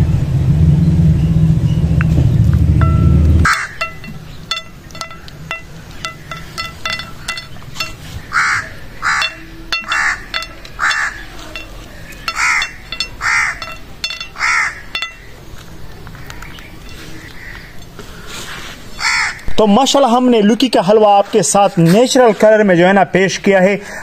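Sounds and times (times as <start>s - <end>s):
crow cawing: 8.3s - 9.2s, 19.0s - 19.4s
nuts dropping on a ceramic plate: 9.0s - 17.4s.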